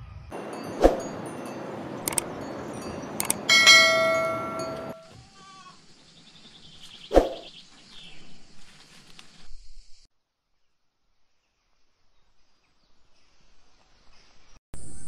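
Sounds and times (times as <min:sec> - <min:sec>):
outdoor background noise: 0:00.3 - 0:15.0
goat bleating: 0:05.1 - 0:05.8.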